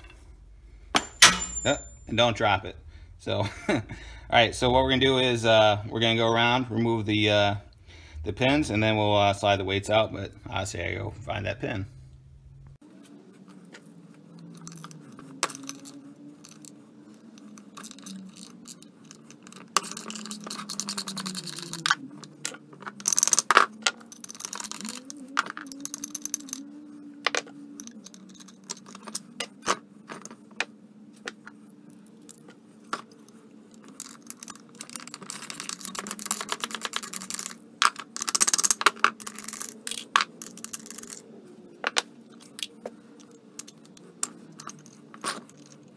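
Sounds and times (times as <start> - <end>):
metal tools clinking and scraping: 0.0 - 2.4
steady low hum: 0.0 - 45.9
sharp metallic clanks: 0.9 - 2.2.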